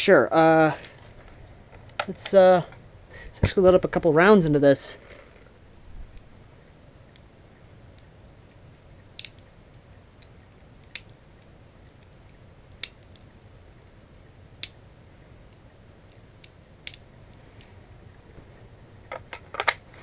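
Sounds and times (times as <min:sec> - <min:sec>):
magazine loading clicks: 0:08.0 - 0:12.1, 0:15.5 - 0:17.1.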